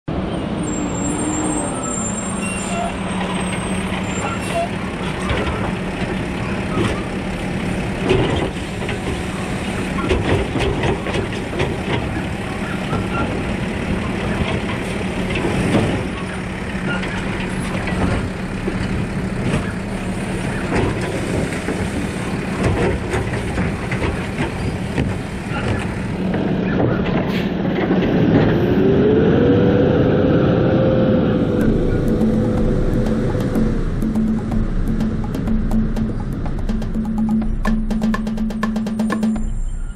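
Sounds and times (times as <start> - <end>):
diesel truck engine: 0.1 - 39.9
plastic carts clanking on metal: 22.5 - 28.2.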